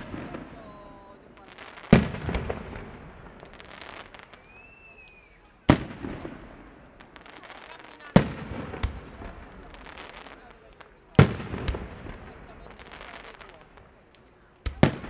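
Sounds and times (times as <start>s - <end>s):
firework bangs with rumbling tail: 0.0s - 0.8s, 1.8s - 4.4s, 5.7s - 7.3s, 8.2s - 10.5s, 11.1s - 13.9s, 14.6s - 15.0s
firework crackling: 0.0s - 15.0s.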